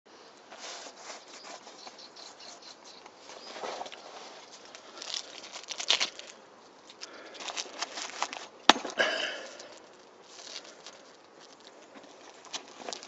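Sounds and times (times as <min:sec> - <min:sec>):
hand rubbing velcro: 0:03.7 - 0:06.4.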